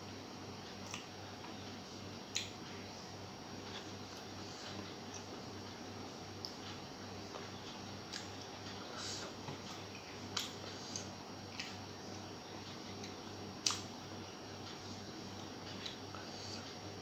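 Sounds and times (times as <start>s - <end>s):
low steady hum: 0.0s - 17.0s
chewing and wet smacks: 0.8s - 1.6s, 2.3s - 2.6s, 3.6s - 5.4s, 6.4s - 8.9s, 9.5s - 13.9s.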